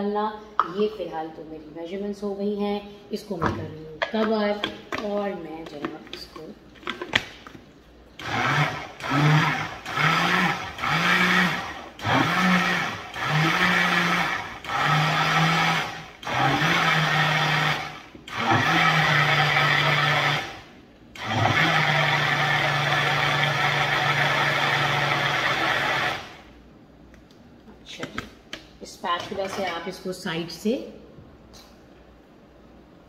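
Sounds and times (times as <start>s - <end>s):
blender running: 8.2s - 26.6s.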